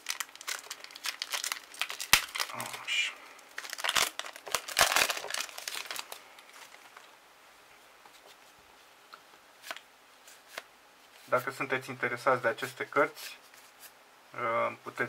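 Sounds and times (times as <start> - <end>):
foil wrapper crinkling: 0.0 - 7.1.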